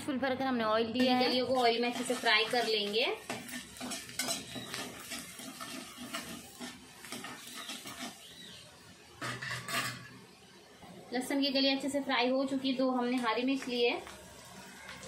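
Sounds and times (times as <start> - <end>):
garlic sizzling in oil: 0.8 - 15.0
spoon scraping a steel wok: 1.0 - 10.2.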